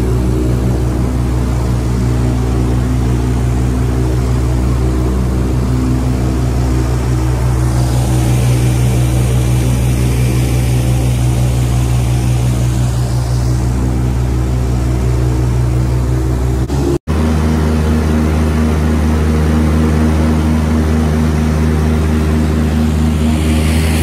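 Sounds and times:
boat engine running: 0.0 - 24.0.

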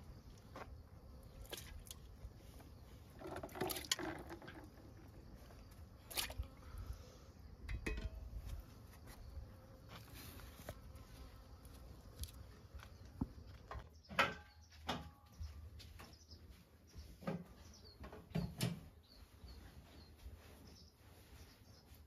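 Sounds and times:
metal pot and bowl clinking: 7.7 - 8.2.

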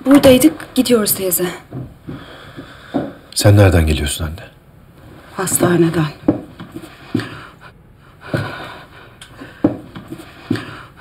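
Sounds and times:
soft thumps: 1.7 - 3.2.

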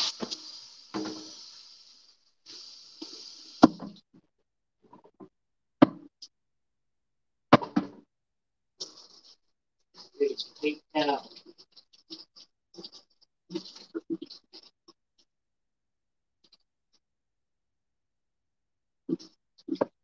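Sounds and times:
brief hiss: 0.0 - 3.7.

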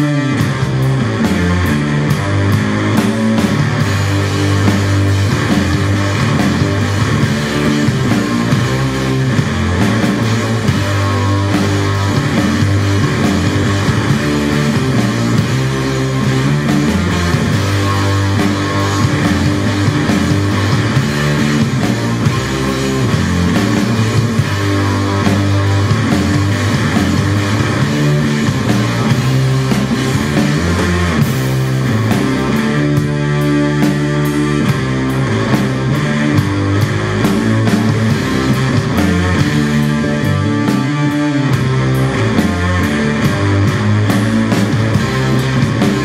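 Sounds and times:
rock music with guitar: 0.0 - 46.0.

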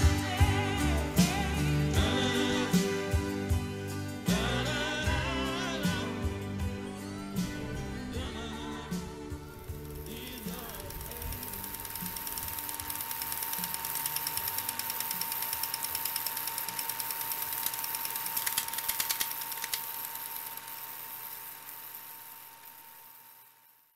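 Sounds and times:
steady projector tone: 0.0 - 23.9
film projector clicking: 8.9 - 23.9.

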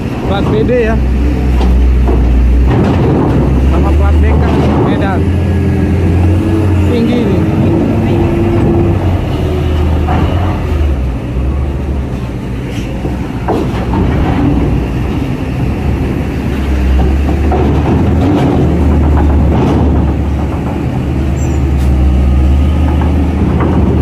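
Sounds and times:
truck diesel engine running: 0.0 - 24.0
short knocks: 0.2 - 5.3, 12.8 - 24.0.

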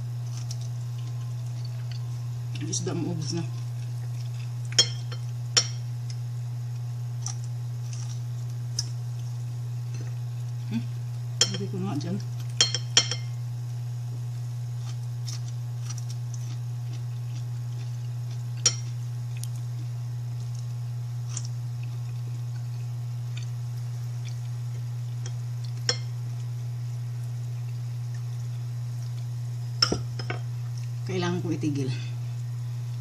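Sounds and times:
steady low hum: 0.0 - 33.0.

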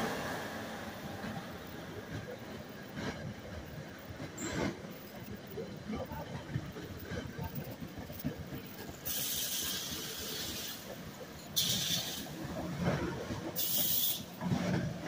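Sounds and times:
train rumbling on rails: 0.0 - 15.0
air brakes hissing: 11.6 - 12.3, 13.6 - 14.3.

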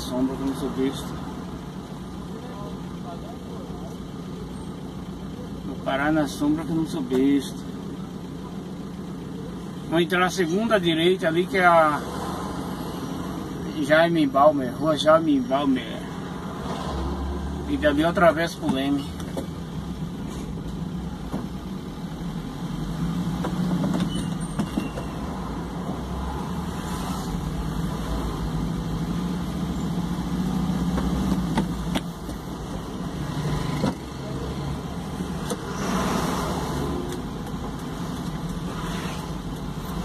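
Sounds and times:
car engine and road noise: 0.0 - 40.0.

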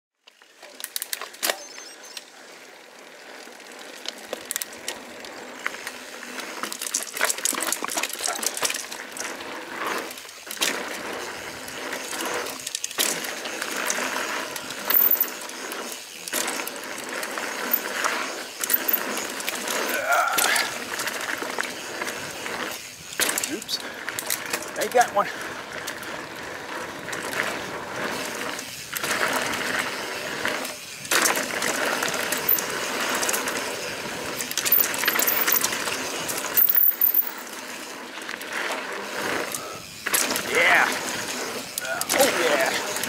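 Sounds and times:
bike clicking and rattling: 0.2 - 43.0
bike tyres on dirt trail: 0.2 - 43.0.

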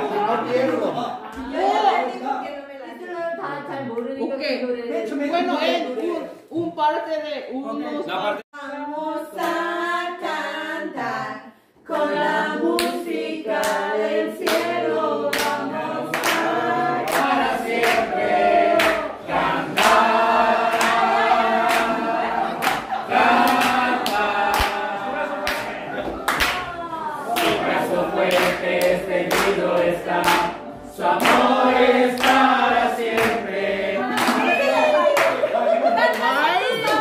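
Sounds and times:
group singing worship song: 8.5 - 37.0
hands clapping in time: 22.6 - 24.8, 28.3 - 30.6, 31.2 - 31.6, 32.2 - 32.6.

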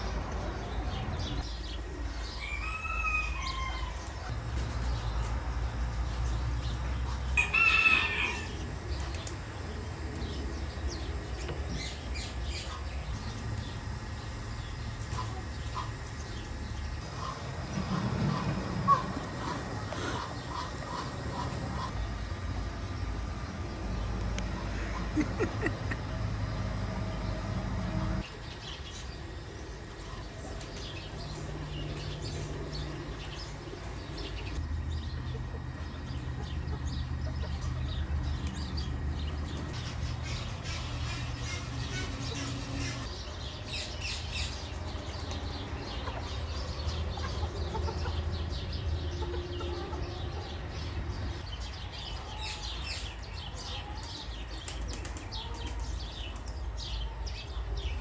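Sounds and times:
birds chirping: 0.0 - 58.0
chickens clucking: 7.0 - 23.0, 29.8 - 43.2, 45.0 - 51.4, 53.4 - 56.5.

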